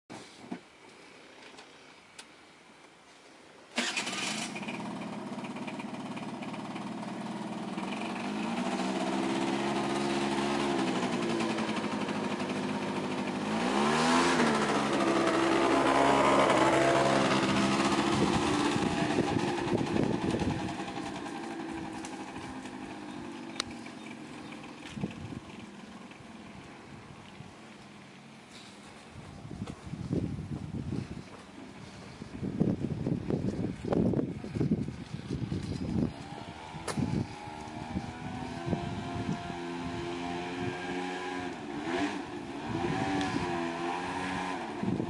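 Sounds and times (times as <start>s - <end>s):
scooter engine revving: 3.8s - 26.7s, 34.6s - 45.0s.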